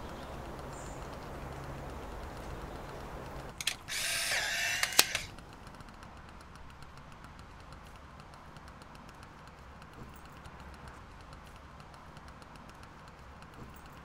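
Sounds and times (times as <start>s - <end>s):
camera motor whirring: 0.4s - 7.0s
camera shutter click: 3.6s - 5.4s.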